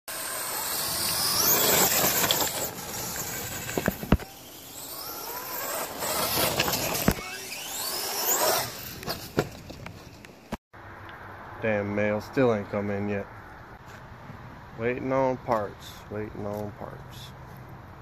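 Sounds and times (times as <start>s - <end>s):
electric motor whine: 0.1s - 9.1s
tyres on wet gravel: 0.5s - 10.2s.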